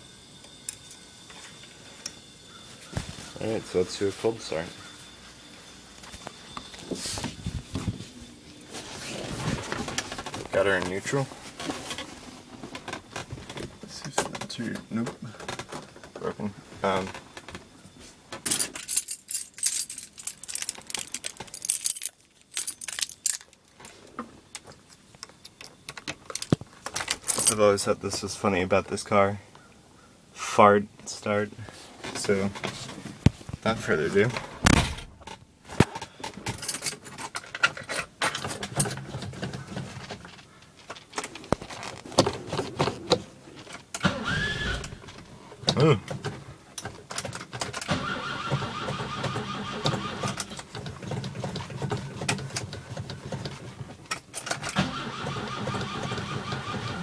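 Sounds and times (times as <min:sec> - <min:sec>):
keys jingling on a key ring: 0:18.5 - 0:23.6.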